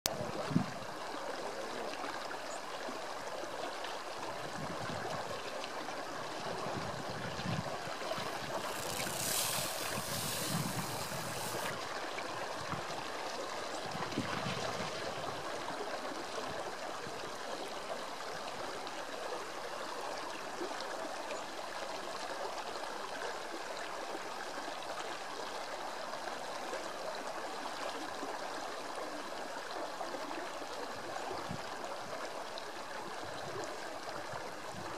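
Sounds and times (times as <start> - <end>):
river rushing over stones: 7.7 - 11.8.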